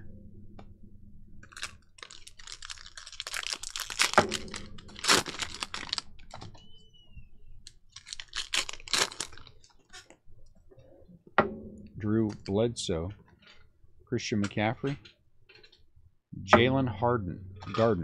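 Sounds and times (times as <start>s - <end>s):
plastic wrapper crinkling: 1.4s - 6.8s, 7.6s - 10.2s.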